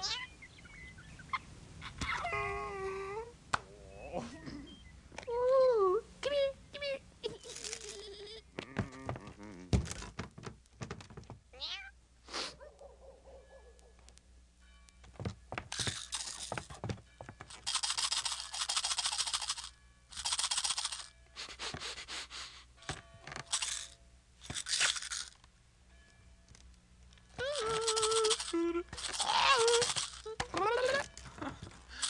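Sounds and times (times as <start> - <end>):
cartoon cat meowing: 0.0 - 0.3, 11.6 - 12.0, 27.4 - 28.5, 29.1 - 31.1.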